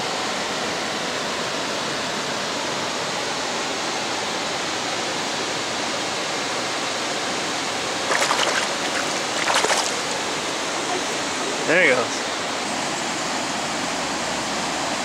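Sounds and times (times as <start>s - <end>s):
water rushing over dam: 7.4s - 12.6s.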